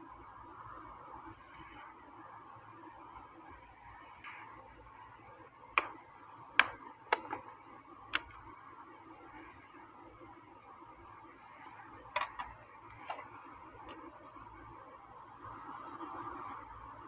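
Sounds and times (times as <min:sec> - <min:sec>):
plastic case clicks and taps: 0:05.8 - 0:06.0, 0:06.6 - 0:07.5, 0:08.2 - 0:08.4, 0:12.2 - 0:13.3.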